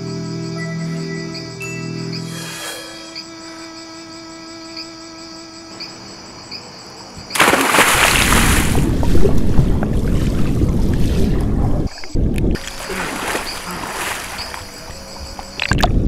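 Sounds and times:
crickets chirping: 0.0 - 16.0
person splashing into pool: 7.3 - 11.5, 12.6 - 14.7
churning bubbling water: 7.4 - 15.0.

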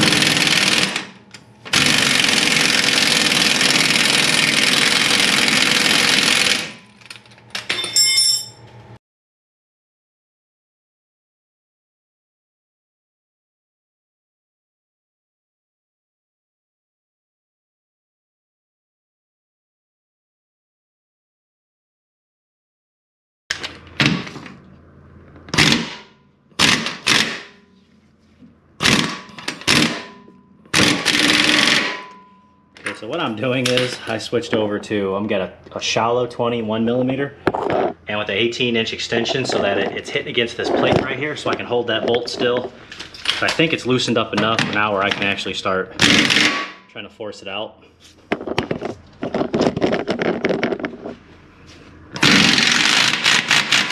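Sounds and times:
impact wrench hammering: 0.0 - 7.0, 25.6 - 27.7, 28.8 - 32.4, 46.0 - 46.9
ringing metallic clinks: 7.7 - 8.7.

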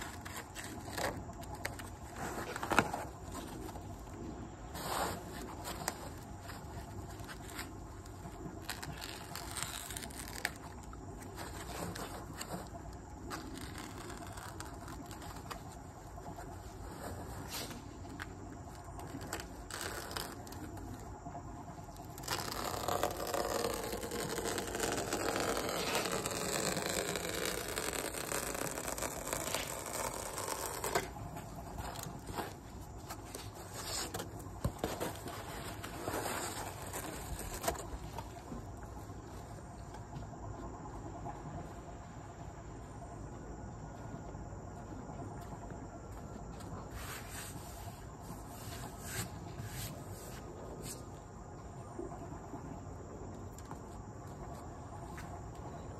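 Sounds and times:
foam sheets scraping on concrete: 22.2 - 31.2.

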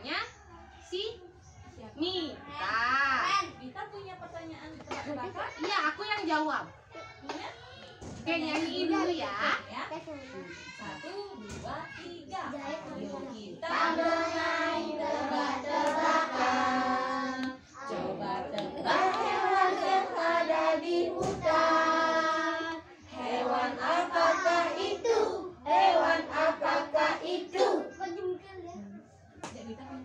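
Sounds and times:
children singing: 12.7 - 27.9.

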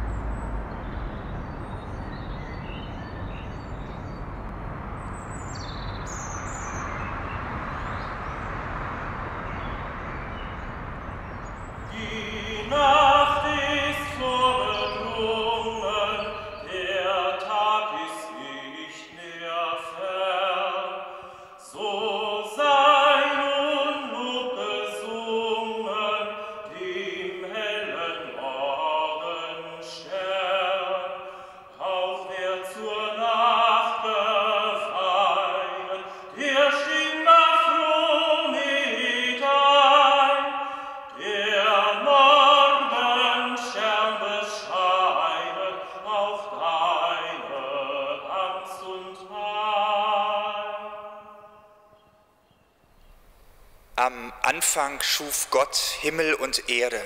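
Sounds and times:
bird chirps: 0.0 - 17.2, 51.1 - 56.9
distant traffic: 0.0 - 18.6, 51.3 - 57.0
person singing in a church: 11.6 - 57.0.

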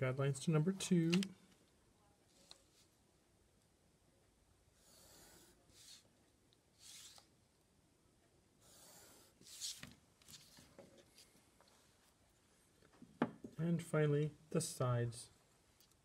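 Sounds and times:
pencil scratching on card: 4.8 - 6.1, 6.8 - 7.2, 8.6 - 9.8.

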